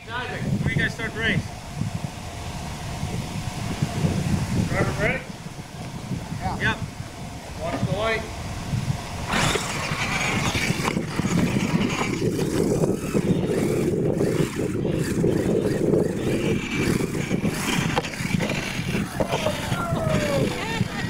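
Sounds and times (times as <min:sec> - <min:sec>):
toy truck motor buzz: 0:09.1 - 0:21.0.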